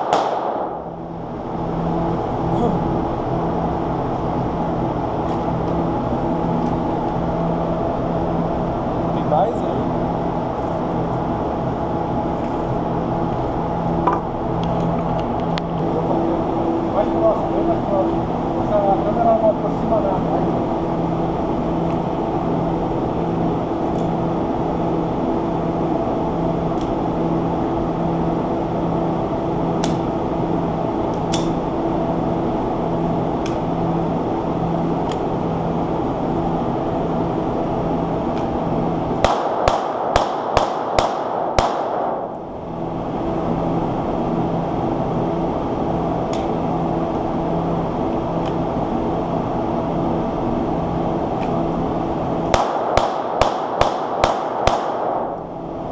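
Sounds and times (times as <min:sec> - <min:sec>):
pistol shots: 0:00.0 - 0:00.9, 0:39.2 - 0:42.3, 0:52.5 - 0:55.4
droning hum: 0:00.0 - 0:55.9.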